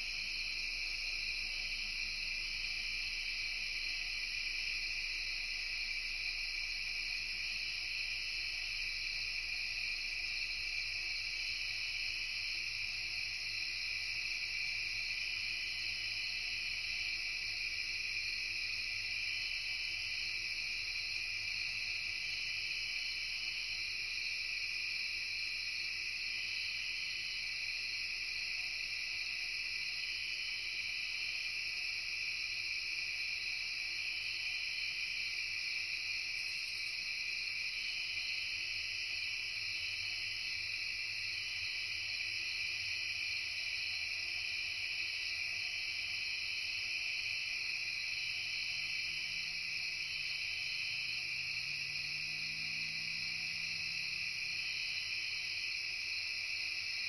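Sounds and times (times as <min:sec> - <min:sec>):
crickets and insects trilling: 0:00.0 - 0:57.0.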